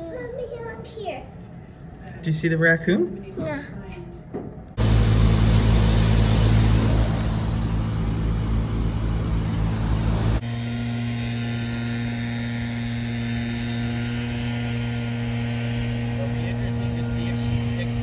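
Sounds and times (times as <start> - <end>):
car road and engine noise: 4.7 - 18.0.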